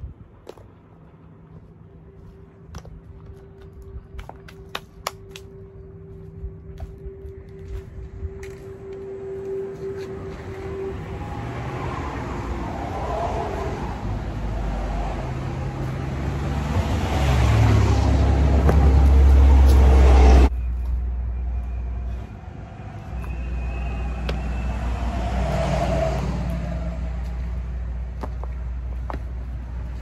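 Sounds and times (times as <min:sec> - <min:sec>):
passing road traffic rumble: 0:08.0 - 0:30.0.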